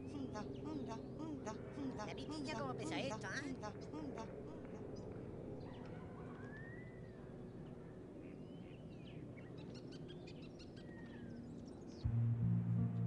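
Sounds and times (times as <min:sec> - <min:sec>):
birds chirping: 0:00.0 - 0:12.1
low background noise: 0:00.0 - 0:13.0
sliding whistled bird calls: 0:05.7 - 0:07.1.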